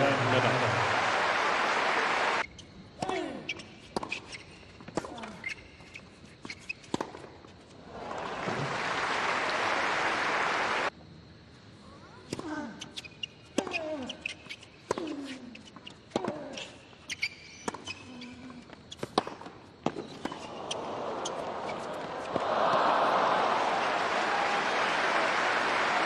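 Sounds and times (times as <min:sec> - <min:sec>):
crowd applause: 0:00.0 - 0:02.4, 0:07.9 - 0:10.9, 0:20.7 - 0:26.0.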